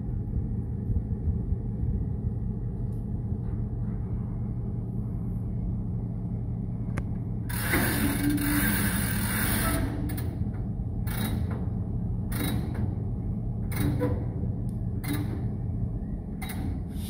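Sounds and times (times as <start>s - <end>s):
diesel locomotive engine rumbling: 0.0s - 17.0s.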